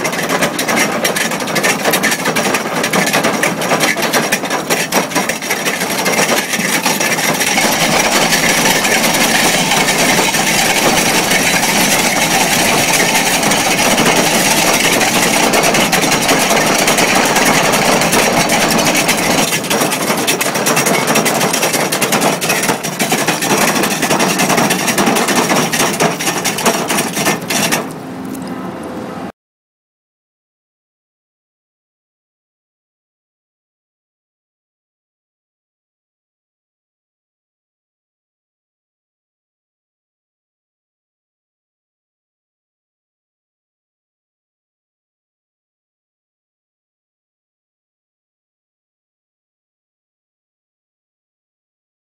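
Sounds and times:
drum cutter grinding rock: 0:00.0 - 0:28.0.

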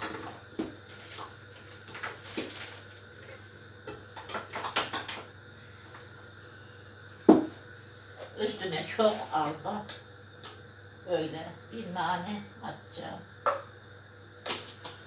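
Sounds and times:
glass bottles clinking: 0:00.0 - 0:00.4.

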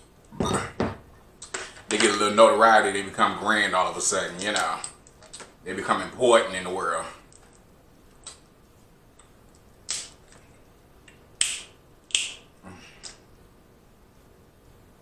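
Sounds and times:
crab shells cracking: 0:09.1 - 0:10.5.

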